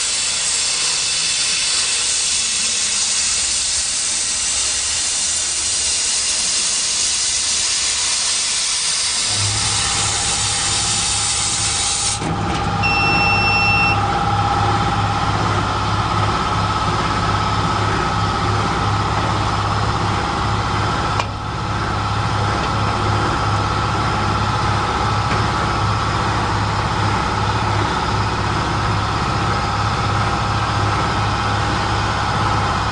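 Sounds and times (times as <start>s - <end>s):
laser cutter hiss: 0.0s - 12.2s
low machine hum: 9.1s - 32.9s
short beep: 12.8s - 14.1s.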